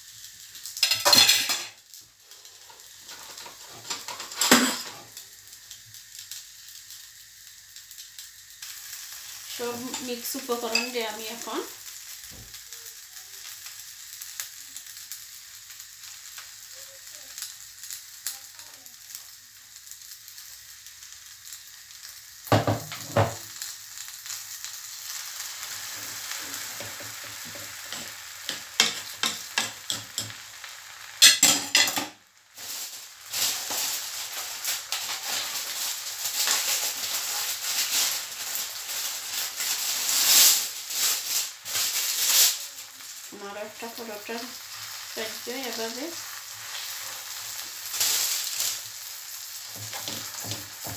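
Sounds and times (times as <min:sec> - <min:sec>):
egg mixture sizzling in pan: 0:00.0 - 0:50.9
spatula scraping pan: 0:49.7 - 0:50.9.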